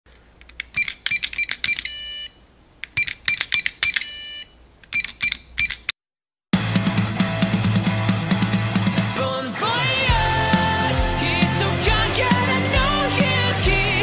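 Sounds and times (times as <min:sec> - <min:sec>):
rock music: 0:06.6 - 0:14.0.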